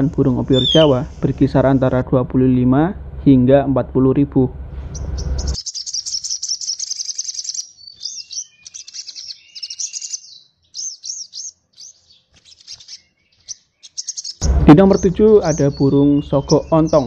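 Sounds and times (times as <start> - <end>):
bird twittering and whistling: 0.0 - 1.1, 4.9 - 17.0.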